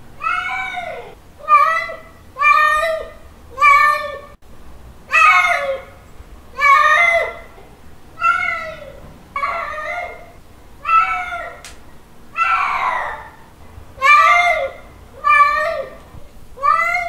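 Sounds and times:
cat meowing: 0:08.2 - 0:11.7, 0:14.0 - 0:16.0, 0:16.6 - 0:17.0.

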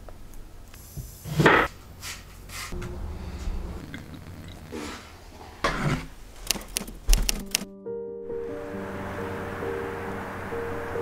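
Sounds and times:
low steady hum: 0:01.7 - 0:06.3.

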